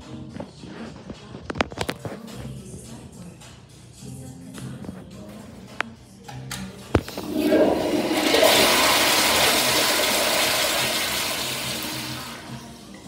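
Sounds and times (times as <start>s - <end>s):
toilet flushing: 7.1s - 13.0s.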